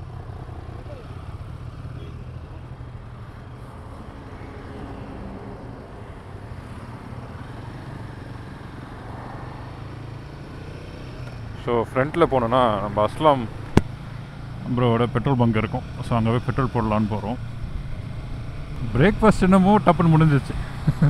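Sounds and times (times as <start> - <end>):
motorcycle engine low rumble: 0.0 - 4.6.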